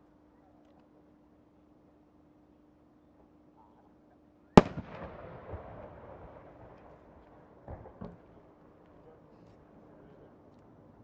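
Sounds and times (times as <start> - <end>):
rumbling echo: 4.6 - 8.0.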